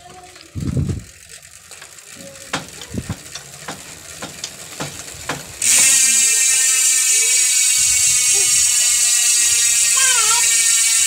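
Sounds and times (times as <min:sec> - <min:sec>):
bicycle hub clicks: 0:00.0 - 0:11.0
bicycle hub freewheeling buzz: 0:00.0 - 0:11.0.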